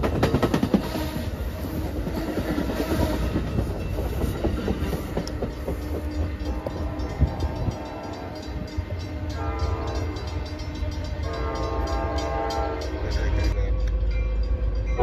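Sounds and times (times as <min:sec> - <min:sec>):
train rumbling: 0:00.0 - 0:15.0
train horn chord blasts: 0:06.4 - 0:13.5.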